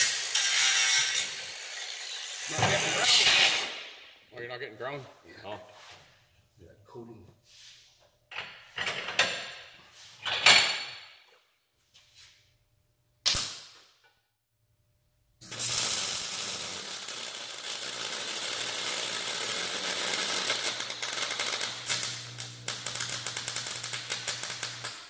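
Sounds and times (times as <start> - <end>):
welding arc crackling hiss: 0.0 - 4.0, 15.4 - 25.0.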